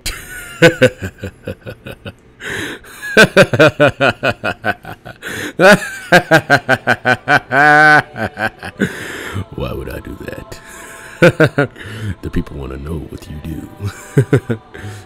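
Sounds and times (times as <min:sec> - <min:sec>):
man laughing hard: 0:00.0 - 0:09.0, 0:11.0 - 0:11.8, 0:13.9 - 0:14.9.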